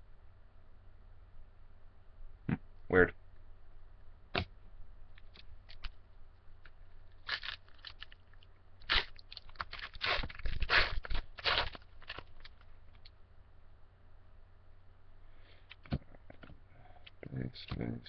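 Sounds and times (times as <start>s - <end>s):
foil wrapper crinkling and tearing: 7.0s - 13.1s.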